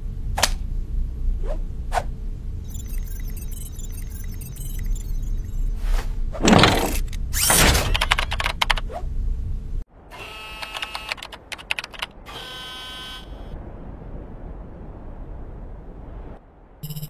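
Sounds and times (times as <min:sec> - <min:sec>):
low hum: 0:00.0 - 0:10.1
rapid clatter of clicks: 0:10.7 - 0:12.1.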